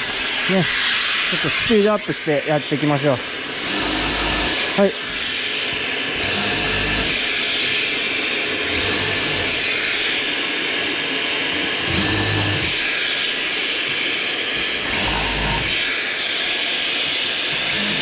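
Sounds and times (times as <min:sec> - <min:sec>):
dust extractor running: 0:00.0 - 0:18.0
impact driver drilling plywood: 0:03.5 - 0:10.2, 0:11.8 - 0:13.3, 0:14.5 - 0:16.0, 0:17.5 - 0:18.0.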